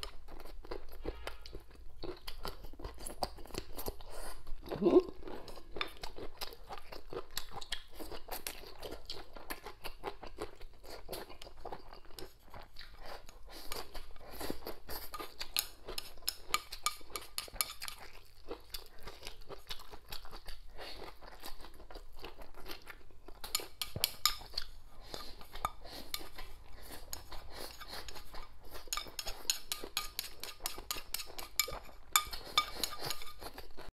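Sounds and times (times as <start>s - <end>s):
person chewing crunchy food: 0.0s - 33.9s.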